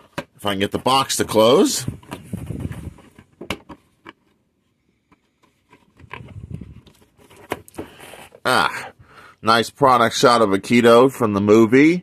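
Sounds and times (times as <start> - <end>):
cardboard rustling and scraping: 0.0 - 8.4.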